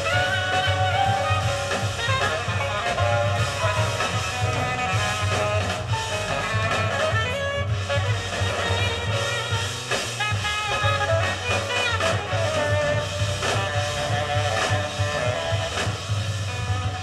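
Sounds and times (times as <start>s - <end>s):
jazz from a vinyl record: 0.0s - 17.0s.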